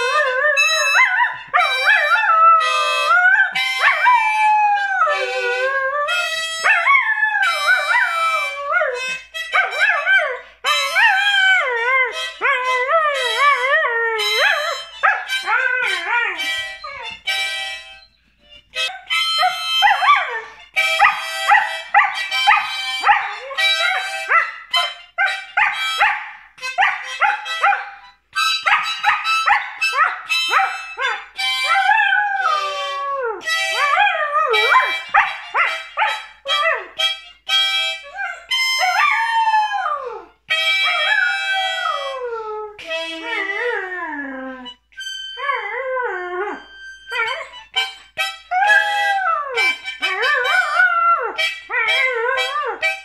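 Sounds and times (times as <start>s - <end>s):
dog howling: 0.0s - 9.0s, 28.6s - 37.0s, 38.0s - 44.8s, 48.5s - 52.9s
music with held notes: 0.0s - 53.0s.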